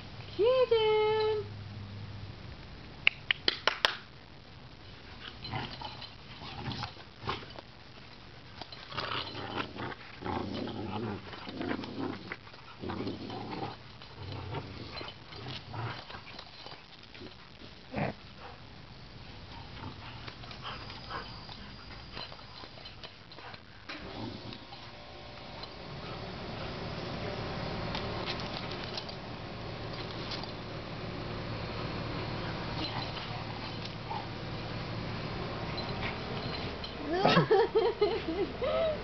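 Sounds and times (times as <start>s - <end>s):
dogs growling and grunting: 5.2s - 7.6s, 8.8s - 18.6s, 19.5s - 25.0s, 35.5s - 39.0s.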